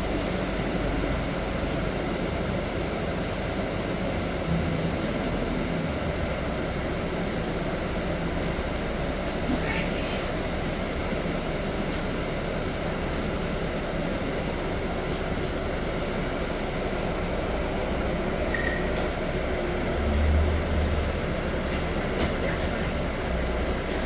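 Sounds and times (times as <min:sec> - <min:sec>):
bus engine and road noise: 0:00.0 - 0:24.0
sharp air hiss: 0:09.3 - 0:11.9.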